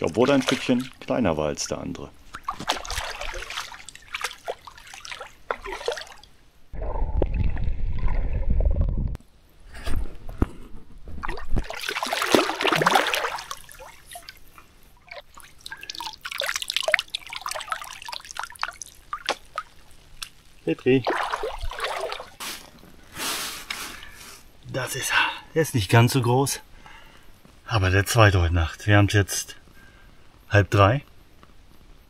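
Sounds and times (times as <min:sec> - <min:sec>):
water splashing and trickling: 0:00.0 - 0:09.1, 0:11.1 - 0:23.1.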